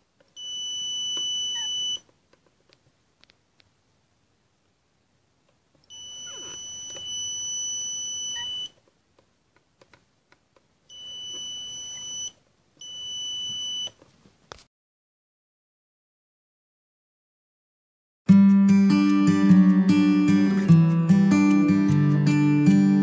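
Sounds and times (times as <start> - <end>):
high-pitched buzzer beep: 0.4 - 2.0, 5.9 - 8.7, 10.9 - 13.9.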